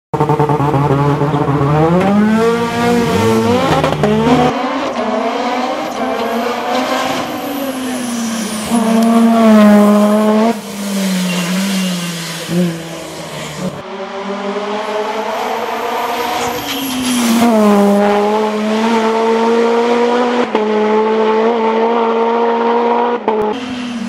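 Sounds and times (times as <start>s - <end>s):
race car engine revving: 0.2s - 24.0s
tyre squeal: 6.2s - 13.8s, 15.7s - 17.7s.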